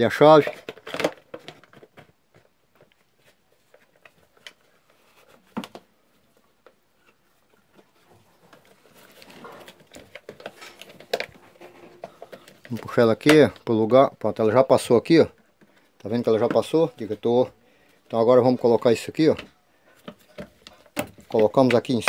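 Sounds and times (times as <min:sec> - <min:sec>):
plastic parts clicking and rustling: 0:00.1 - 0:05.9, 0:06.6 - 0:14.4, 0:18.0 - 0:22.0.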